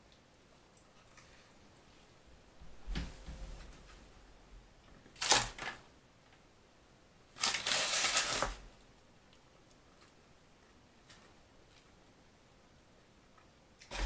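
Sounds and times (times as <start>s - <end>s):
food wrapper rustling and crinkling: 7.4s - 8.7s.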